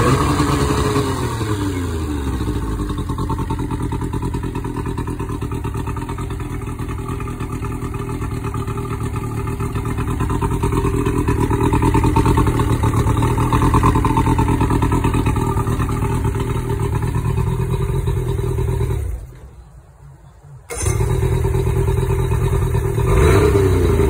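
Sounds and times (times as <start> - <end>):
outboard motor running: 0.0 - 19.2.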